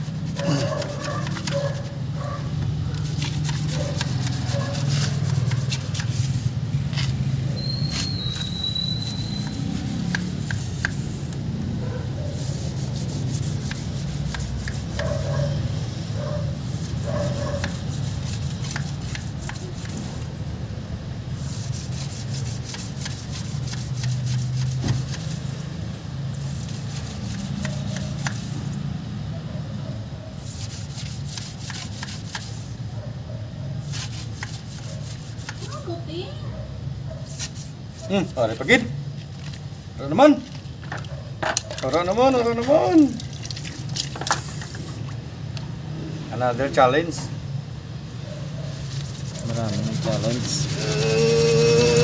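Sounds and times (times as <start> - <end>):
steel rod rasping in radiator tubes: 3.0 - 7.0, 7.6 - 11.4, 12.4 - 15.1, 21.4 - 25.6, 26.4 - 28.6, 30.4 - 32.7, 48.7 - 52.0.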